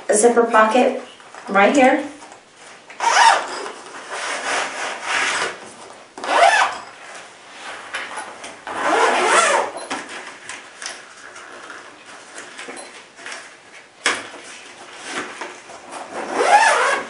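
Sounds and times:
zipper being pulled: 3.0 - 5.6, 6.2 - 6.9, 8.6 - 9.8, 16.0 - 17.0.

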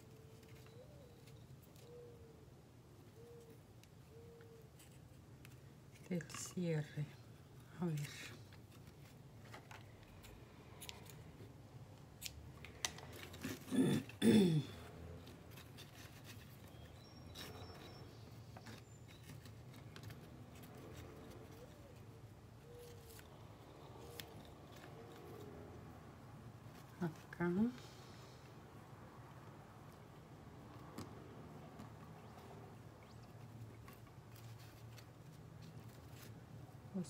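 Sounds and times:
cord rustling: 29.4 - 37.0.

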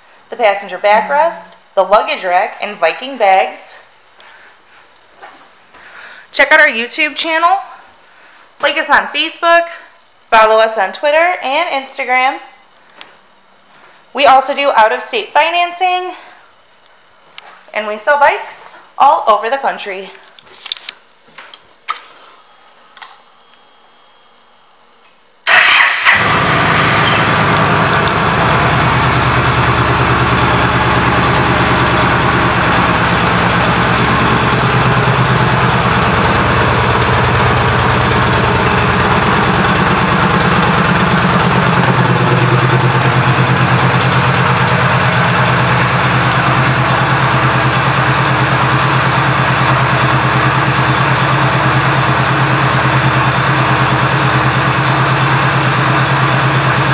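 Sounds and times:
motorcycle engine starting and idling: 25.4 - 56.9.

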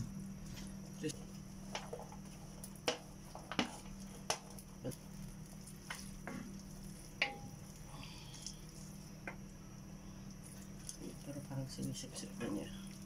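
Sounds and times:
steady low hum: 0.0 - 13.0
spatula stirring food in a wok: 0.6 - 9.7
spatula knocking against pan: 7.2 - 7.6.

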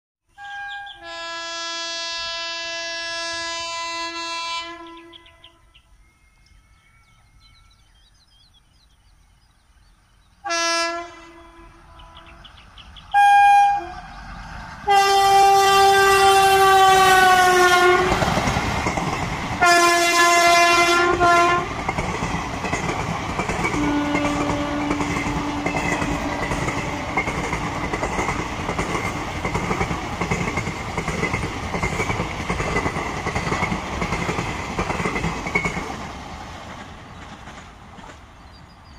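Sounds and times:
locomotive horn blasts: 0.3 - 7.7, 10.4 - 12.5, 13.1 - 14.1, 14.8 - 18.2, 19.6 - 21.8, 23.7 - 27.3
train coaches rolling past: 0.4 - 38.9.

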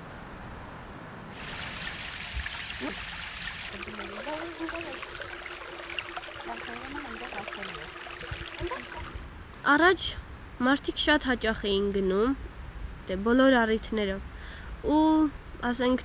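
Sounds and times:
stream trickling over stones: 1.3 - 9.3.

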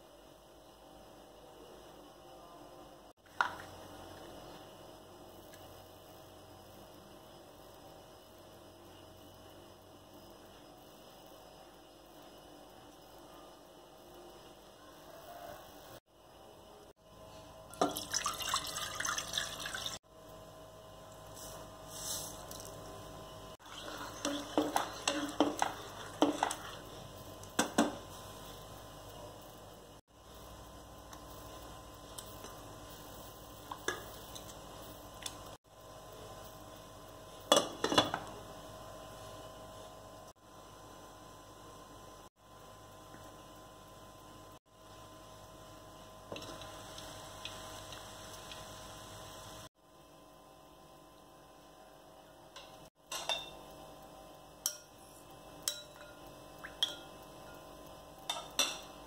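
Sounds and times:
utensils and dishes clinking: 55.6 - 57.6.

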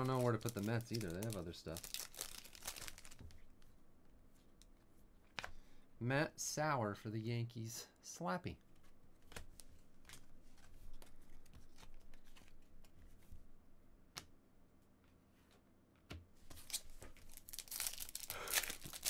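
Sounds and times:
foil wrapper crinkling and tearing: 0.0 - 3.3, 16.6 - 19.0.

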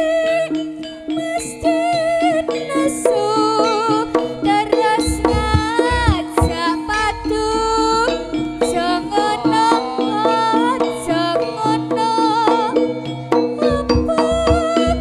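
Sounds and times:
hand drums: 0.0 - 15.0
sliding lead melody: 2.3 - 12.2
steady held tone: 2.7 - 12.2.

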